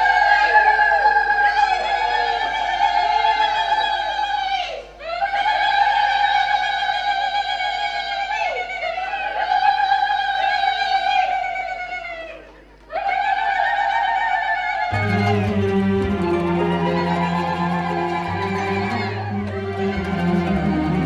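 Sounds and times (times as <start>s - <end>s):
woman singing long notes: 14.9s - 21.0s.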